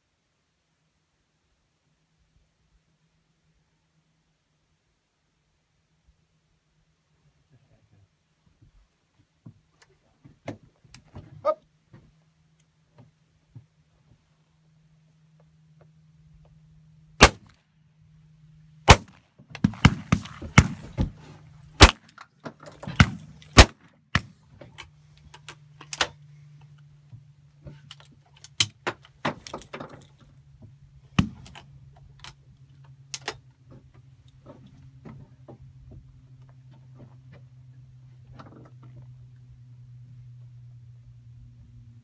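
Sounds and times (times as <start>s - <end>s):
shotgun shots: 17.2s - 17.5s, 18.9s - 21.2s, 21.8s - 22.1s, 22.9s - 24.4s.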